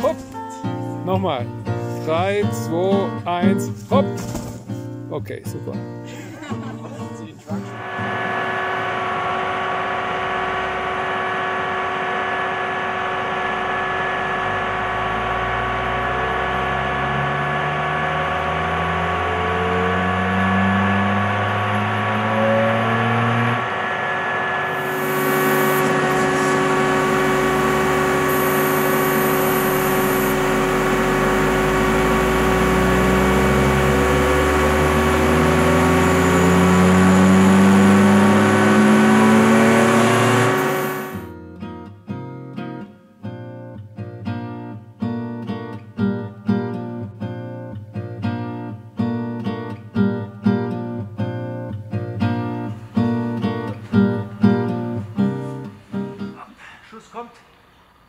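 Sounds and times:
hydraulic whine: 0:07.5 - 0:41.3
low hum rising in pitch: 0:07.6 - 0:41.3
truck engine running: 0:07.7 - 0:41.3.

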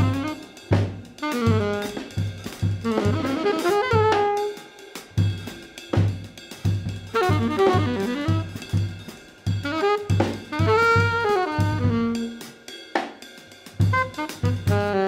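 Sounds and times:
drums: 0:00.0 - 0:15.0.

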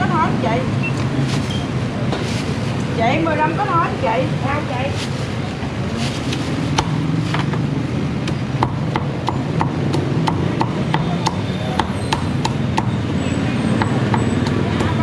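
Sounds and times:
cleaver chopping on wooden block: 0:06.8 - 0:07.6, 0:08.2 - 0:12.9.

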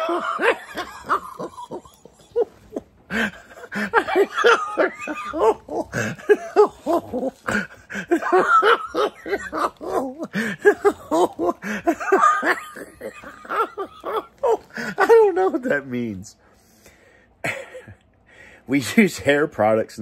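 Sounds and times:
man laughing hard: 0:00.0 - 0:16.0.

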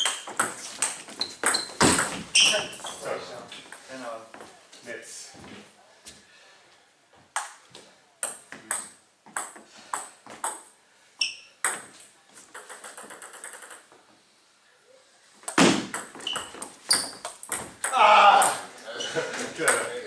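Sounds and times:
table tennis ball clicking: 0:12.5 - 0:13.9.

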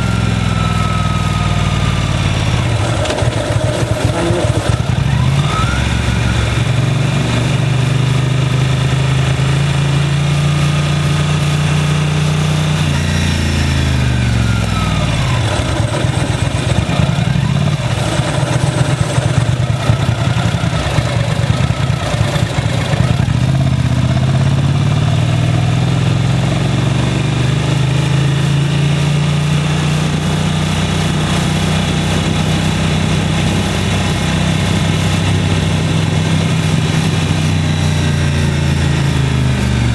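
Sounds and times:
motorcycle engine running: 0:00.0 - 0:39.9
wind noise: 0:31.1 - 0:39.9.

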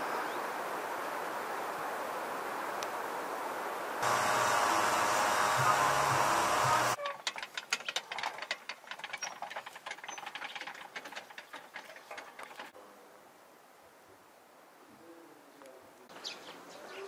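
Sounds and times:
metal prayer wheels rattling: 0:04.0 - 0:12.8.

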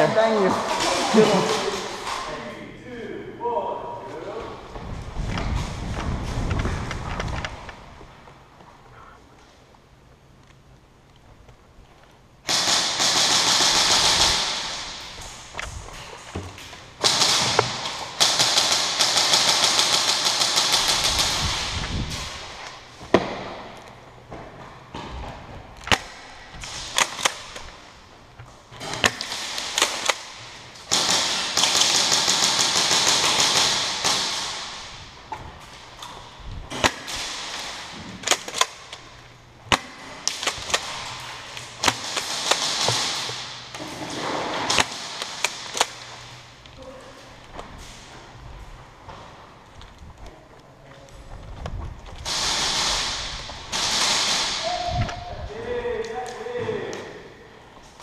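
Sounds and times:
airsoft automatic fire: 0:12.5 - 0:15.3, 0:17.0 - 0:22.5, 0:29.0 - 0:35.0, 0:41.8 - 0:43.6, 0:52.2 - 0:54.9.

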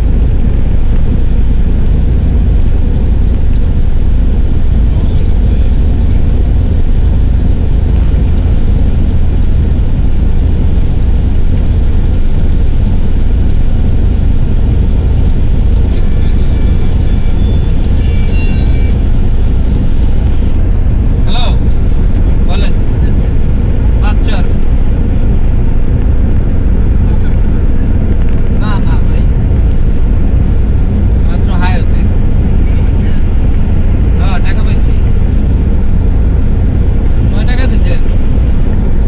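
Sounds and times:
car tyre and wind rumble: 0:00.0 - 0:39.0.

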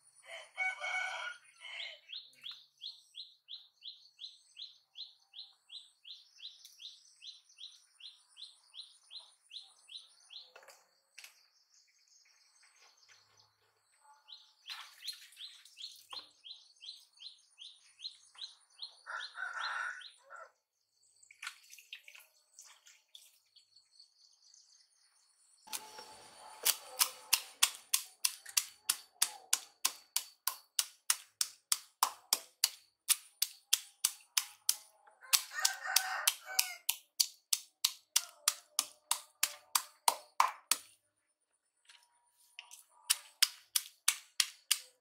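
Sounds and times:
sharp evenly spaced knocks: 0:26.6 - 0:40.9, 0:43.1 - 0:45.0.

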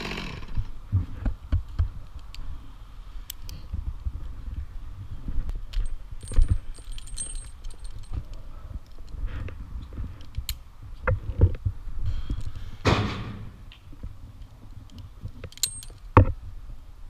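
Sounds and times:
climbing gear clinking: 0:05.7 - 0:09.2, 0:14.9 - 0:16.2.

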